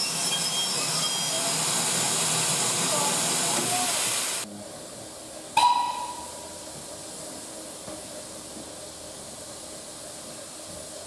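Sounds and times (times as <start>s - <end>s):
steam hissing: 0.0s - 4.5s
sharp metallic clang: 5.6s - 6.6s.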